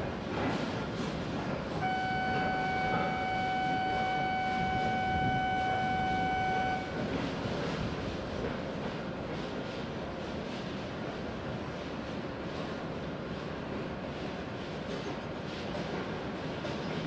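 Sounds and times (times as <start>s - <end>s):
station platform background noise: 0.0s - 17.0s
electronic warning tone: 1.8s - 7.0s.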